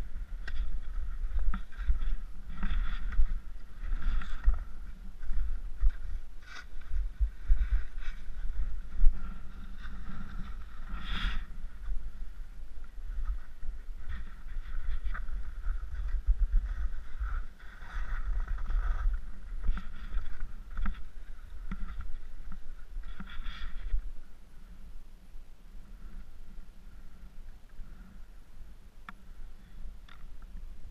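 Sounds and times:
wind rumble on microphone: 0:00.0 - 0:30.9
skis scraping on snow: 0:00.3 - 0:23.9.

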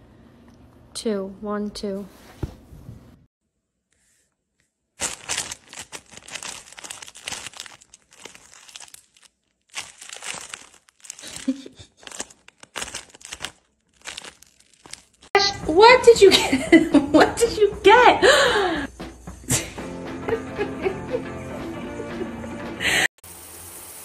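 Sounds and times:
plastic bag crinkling: 0:05.0 - 0:15.3.

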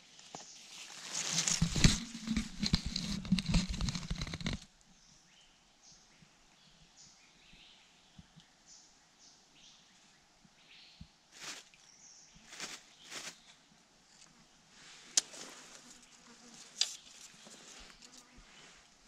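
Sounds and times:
leaf litter rustling: 0:00.6 - 0:04.1, 0:11.3 - 0:13.5.

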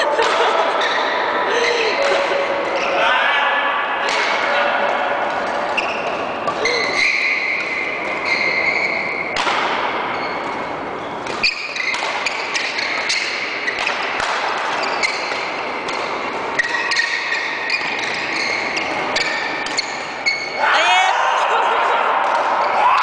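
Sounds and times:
shoes squeaking on court floor: 0:00.7 - 0:03.0, 0:05.4 - 0:09.4, 0:10.0 - 0:20.6
racquets hitting shuttlecock: 0:09.2 - 0:10.6, 0:11.2 - 0:20.2, 0:22.1 - 0:23.0.

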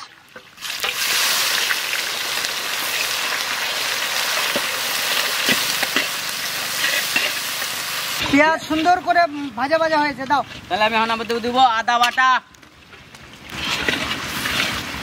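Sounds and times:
onions sizzling in hot oil: 0:00.0 - 0:09.5, 0:13.3 - 0:15.0.

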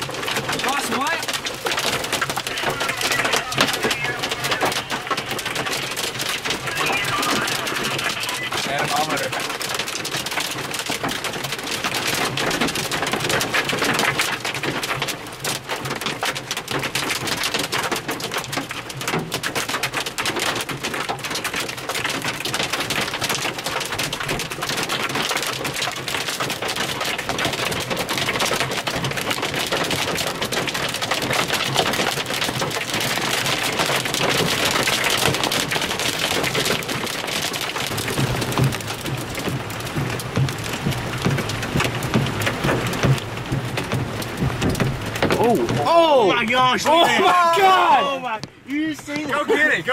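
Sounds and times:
hail and rain on vehicle roof: 0:00.0 - 0:49.9.

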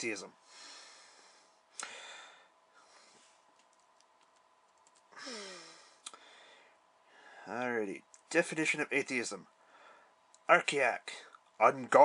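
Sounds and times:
man breathing out heavily: 0:00.4 - 0:03.2, 0:05.2 - 0:07.5.

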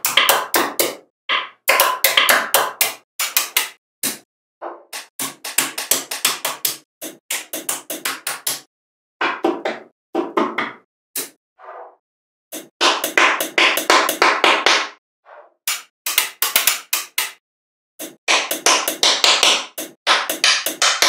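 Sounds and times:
magnetic balls clicking together: 0:00.8 - 0:04.2.

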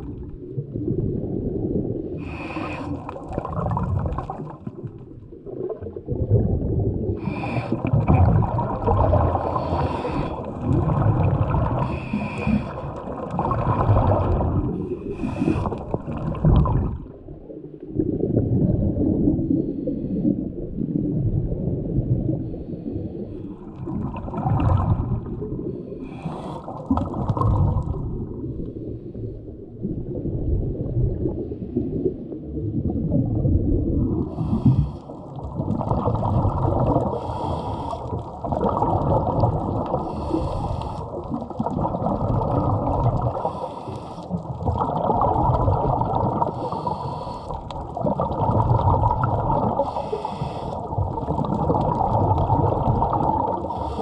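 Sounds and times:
exhaled bubbles gurgling: 0:00.0 - 0:54.0
diver breathing underwater: 0:02.1 - 0:04.6, 0:07.0 - 0:17.0, 0:24.4 - 0:29.5, 0:34.2 - 0:54.0.

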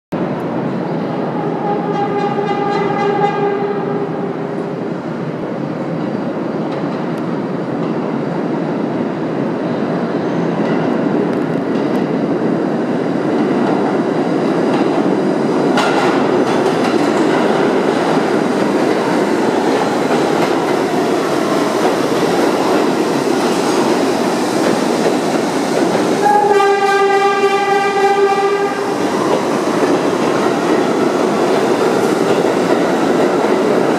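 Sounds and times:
subway train rumbling past: 0:00.2 - 0:33.9
train horn blasts: 0:01.4 - 0:04.4, 0:26.2 - 0:28.9.

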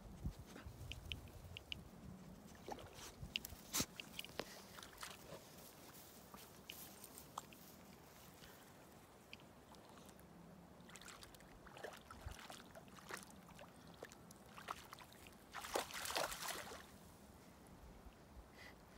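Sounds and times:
dog splashing in water: 0:14.5 - 0:16.9.

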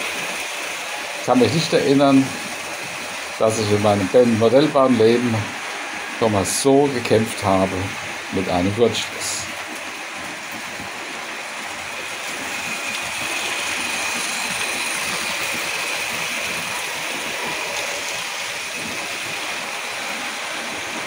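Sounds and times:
thin steady whine: 0:00.0 - 0:21.0
model train wheels rolling on rails: 0:12.0 - 0:21.0.

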